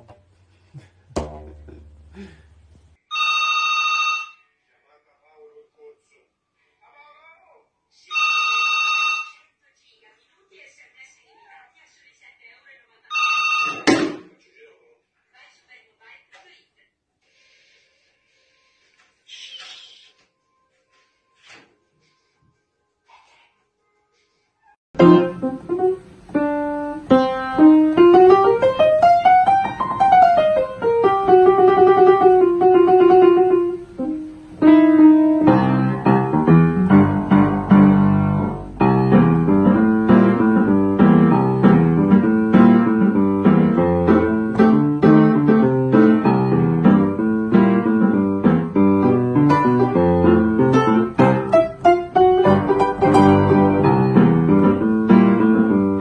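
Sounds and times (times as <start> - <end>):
upright piano playing: 25.0 - 56.0.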